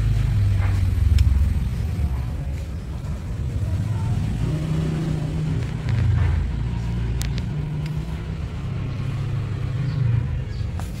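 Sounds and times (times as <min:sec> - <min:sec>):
engine running low rumble: 0:00.0 - 0:11.0
sharp clicks: 0:07.1 - 0:08.1.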